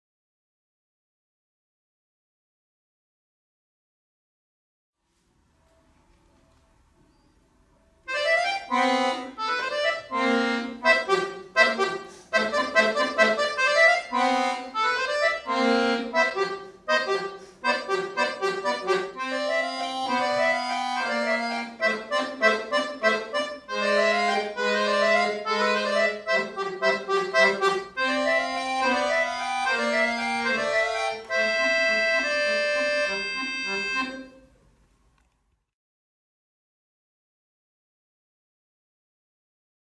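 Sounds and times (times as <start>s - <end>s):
button accordion playing: 8.1s - 34.6s.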